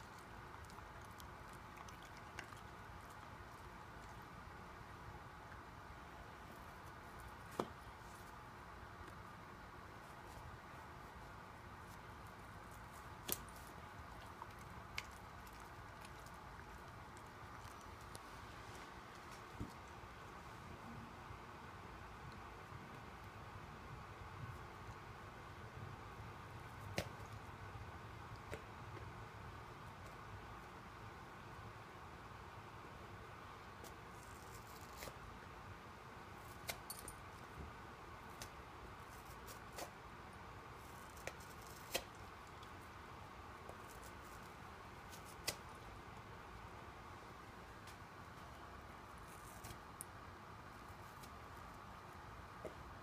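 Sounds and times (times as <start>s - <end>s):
dog chewing a ball: 0.0s - 4.4s.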